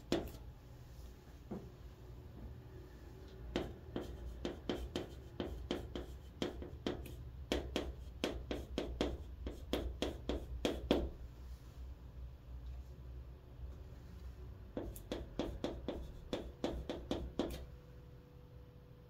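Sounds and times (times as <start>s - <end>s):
chalk writing on chalkboard: 0.0s - 0.4s, 3.5s - 11.2s, 14.7s - 17.6s.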